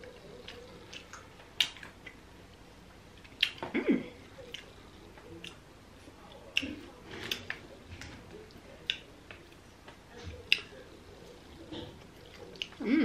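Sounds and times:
mouth chewing clicks and smacks: 0.0s - 2.2s, 3.2s - 3.6s, 4.4s - 5.6s, 6.3s - 7.6s, 8.5s - 9.6s, 10.3s - 10.8s, 11.7s - 12.8s.

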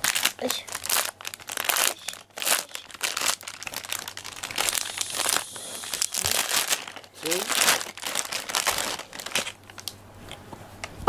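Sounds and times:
plastic bag crinkling and rustling: 0.0s - 10.0s.

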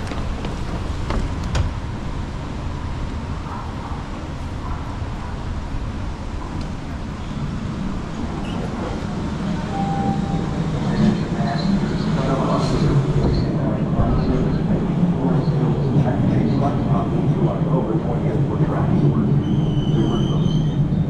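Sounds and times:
subway train rumbling: 0.0s - 21.0s
brief high tone: 9.7s - 10.5s.

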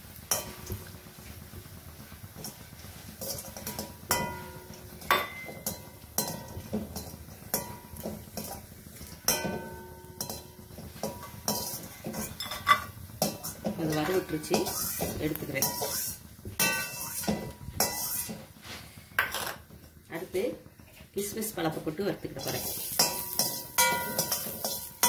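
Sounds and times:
spoon clinking on steel pan: 3.6s - 8.6s, 9.3s - 14.7s, 16.6s - 18.2s, 23.0s - 25.0s.

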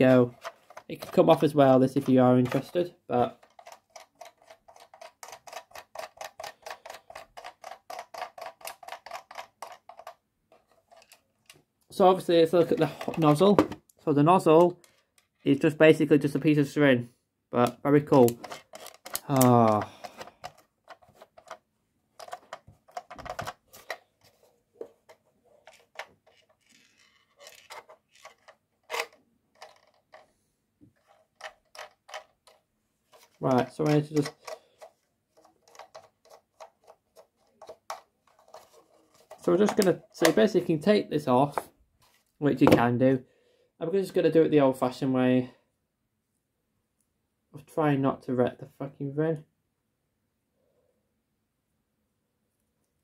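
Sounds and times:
toy hose reel clicking: 1.9s - 10.2s, 18.2s - 21.6s, 25.6s - 30.3s, 33.2s - 40.4s.

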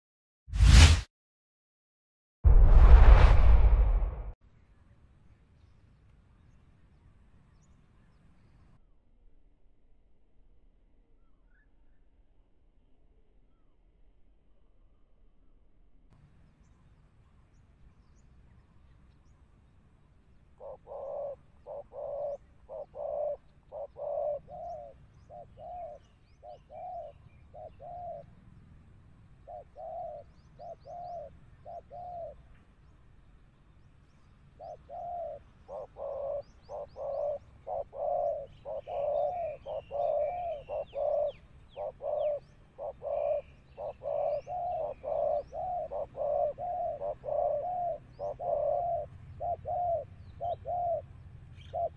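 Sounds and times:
doves cooing: 20.6s - 25.0s, 34.9s - 51.1s
small birds chirping: 34.0s - 51.9s.

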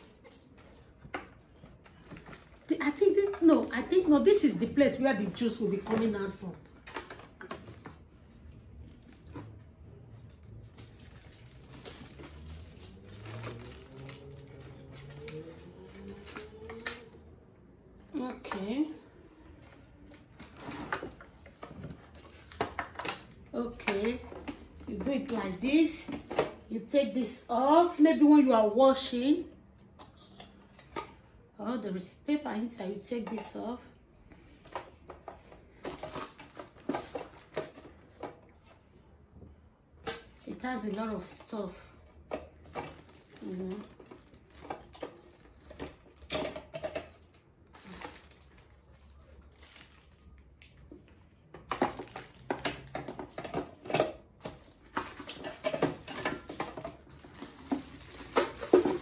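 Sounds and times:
packaging rustling: 0.0s - 17.0s, 42.3s - 50.4s, 51.7s - 59.0s
plastic parts set down: 5.2s - 8.2s, 34.6s - 38.8s, 42.2s - 48.6s, 51.5s - 59.0s.

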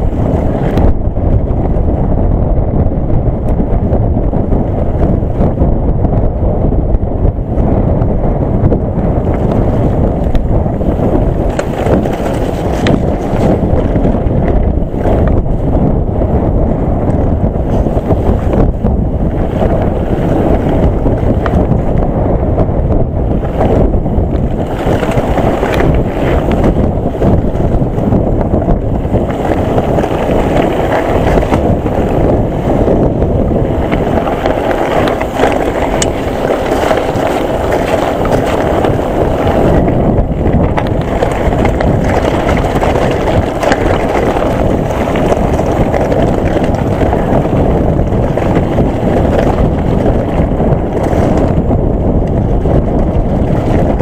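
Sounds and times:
wind on microphone: 0.0s - 54.0s
tyres rolling on gravel: 9.2s - 15.3s, 23.3s - 54.0s.

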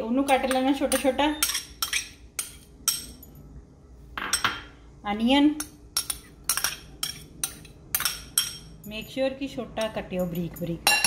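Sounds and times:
metal spoon clinking in ceramic bowl: 0.2s - 3.5s, 5.6s - 9.2s, 9.8s - 11.0s.

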